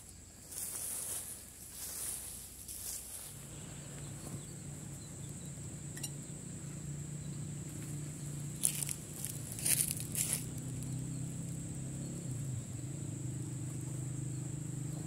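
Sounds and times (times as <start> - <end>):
leaves rustling: 0.0 - 5.0, 7.6 - 11.6
steady low hum: 0.0 - 15.0.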